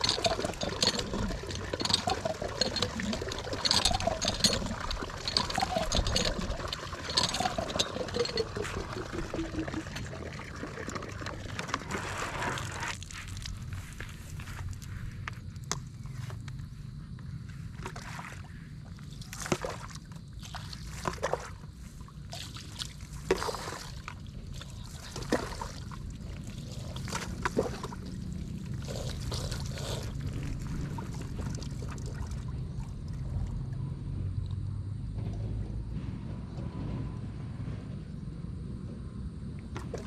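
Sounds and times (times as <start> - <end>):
water splashing on a person: 19.2 - 33.2.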